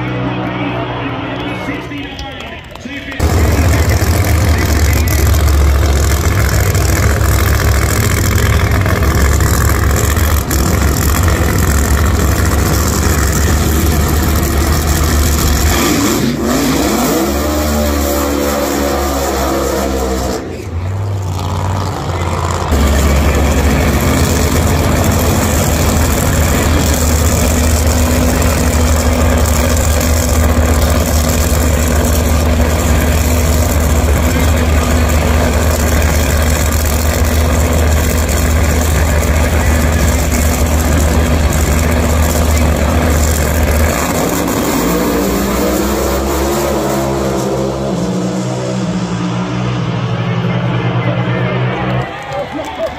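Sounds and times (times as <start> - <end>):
drag racing engines revving: 0.0 - 52.9.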